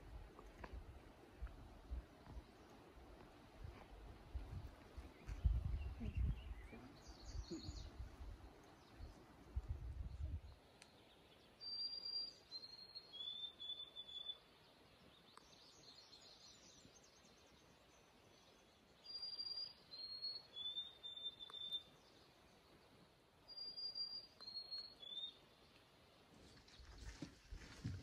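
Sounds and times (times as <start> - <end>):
songbird whistled song: 5.1 - 8.0, 10.0 - 22.3, 23.5 - 25.6.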